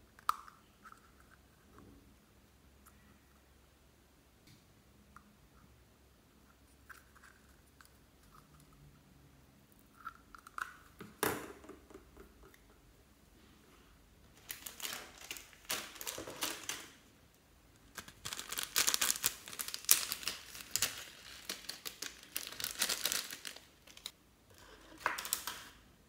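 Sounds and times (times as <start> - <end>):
plastic bag crinkling: 14.3 - 17.0, 17.8 - 24.1, 25.0 - 25.8.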